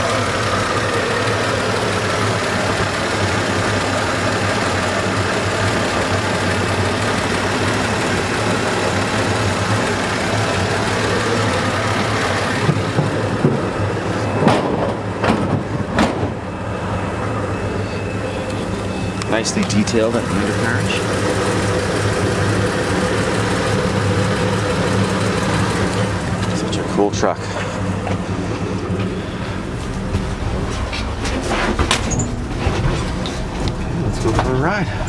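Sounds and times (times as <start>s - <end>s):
car engine idling: 0.0s - 35.0s.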